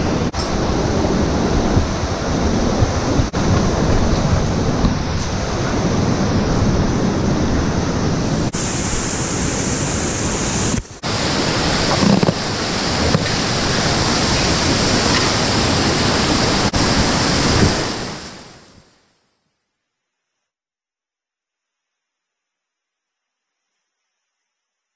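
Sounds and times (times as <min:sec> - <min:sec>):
whitewater rapids rushing: 0:00.0 - 0:18.7.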